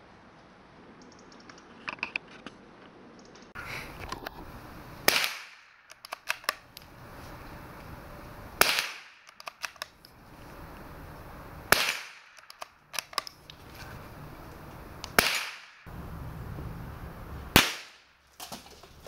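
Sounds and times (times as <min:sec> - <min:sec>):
rifle shots: 0:05.0 - 0:06.6, 0:08.6 - 0:09.8, 0:11.7 - 0:13.2, 0:15.1 - 0:15.9, 0:17.5 - 0:18.0
rifle bolt clicks: 0:05.8 - 0:06.9, 0:09.2 - 0:10.0, 0:12.3 - 0:13.5.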